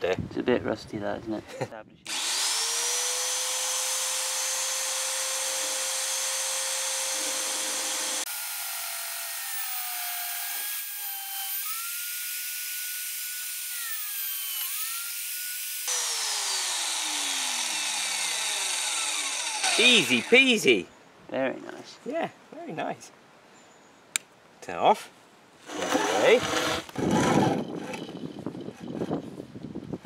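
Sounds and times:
magnetic drill motor: 0:02.1 - 0:20.4, 0:25.7 - 0:28.9
cutter boring through steel: 0:02.1 - 0:20.6, 0:25.7 - 0:28.2.

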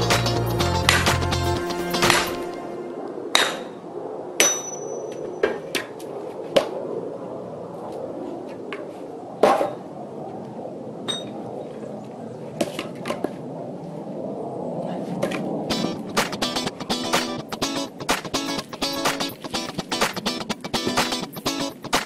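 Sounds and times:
music: 0:00.0 - 0:03.0, 0:15.7 - 0:22.0
steel tool striking logs: 0:04.4 - 0:04.8.

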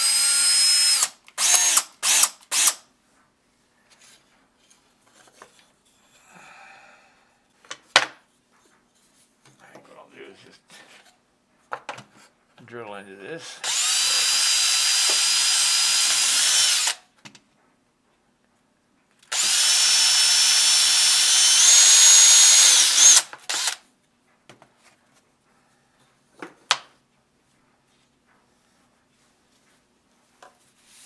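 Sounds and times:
cordless drill whining: 0:00.0 - 0:02.8, 0:13.6 - 0:17.0, 0:19.2 - 0:23.8.

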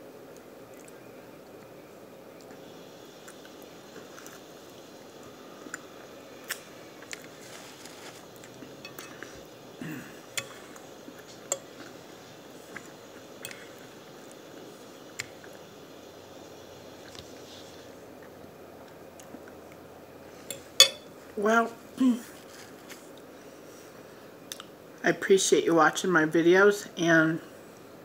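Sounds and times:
person chewing food: 0:03.2 - 0:15.6, 0:17.0 - 0:19.9.

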